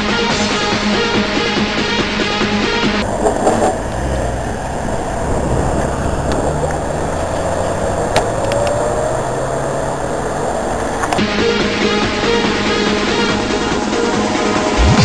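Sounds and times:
city traffic: 0.0s - 15.0s
car engine pulling away: 0.1s - 15.0s
sharp clicks: 8.1s - 8.8s, 10.8s - 11.3s.

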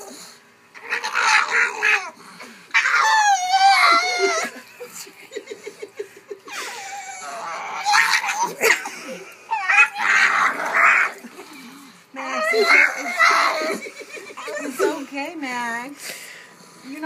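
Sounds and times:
puppy crying and yelping: 0.8s - 4.6s, 6.5s - 8.8s, 9.5s - 11.2s, 12.2s - 15.0s
person laughing: 3.9s - 7.2s, 12.5s - 15.1s.

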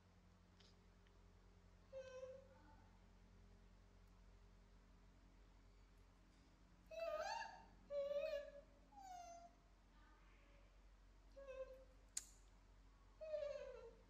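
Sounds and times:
monkey calling: 6.9s - 9.4s
sharp click: 12.2s - 12.5s.

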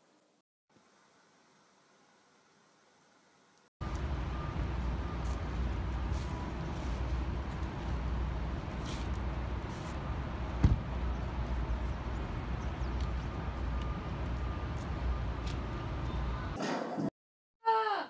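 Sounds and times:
traffic rumble: 3.8s - 16.6s
sharp thump: 10.6s - 10.9s.

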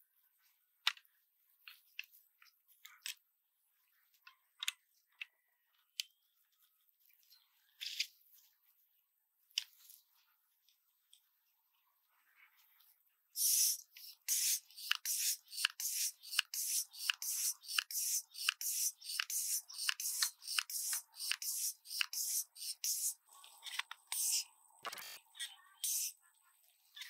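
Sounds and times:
hand air pump strokes hissing: 13.4s - 23.2s, 24.1s - 24.5s, 25.8s - 26.2s.

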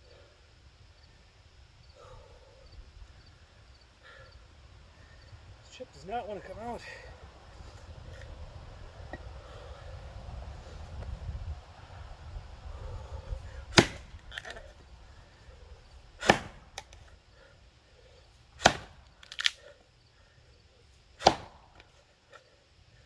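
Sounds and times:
axe chopping into log: 13.7s - 14.6s, 16.2s - 17.0s, 18.6s - 19.5s, 21.2s - 21.9s.

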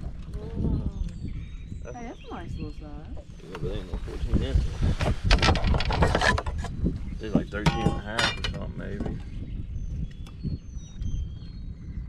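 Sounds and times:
fish rattling on boat deck: 5.2s - 6.7s.

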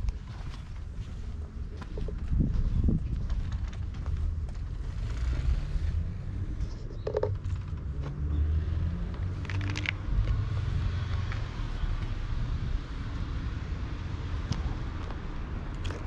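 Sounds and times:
wind buffeting microphone: 0.0s - 5.0s.

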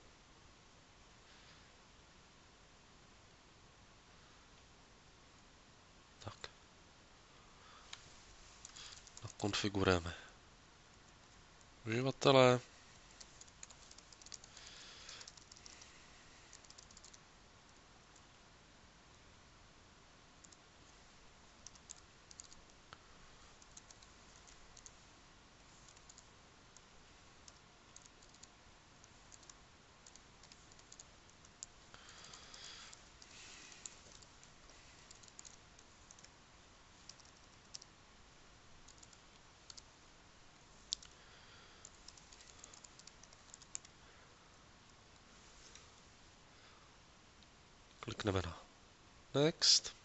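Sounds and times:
computer keyboard typing: 8.6s - 9.6s, 13.1s - 15.9s, 16.5s - 17.2s, 21.6s - 22.7s, 23.6s - 25.0s, 25.8s - 36.3s, 37.0s - 37.9s, 38.9s - 39.9s, 41.8s - 43.9s.

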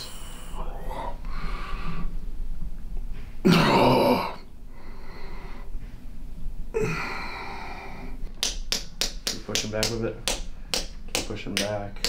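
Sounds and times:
man groaning in pain: 3.4s - 4.4s.

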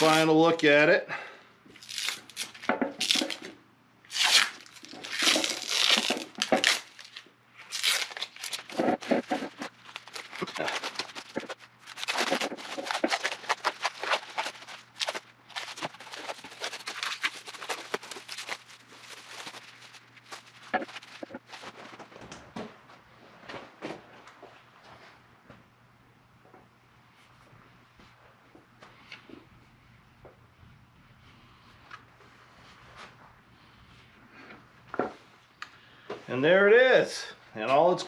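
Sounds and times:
plastic wrap crinkling: 1.8s - 3.5s, 4.1s - 22.2s
tape peeling and tearing: 1.8s - 3.5s, 4.1s - 21.8s.

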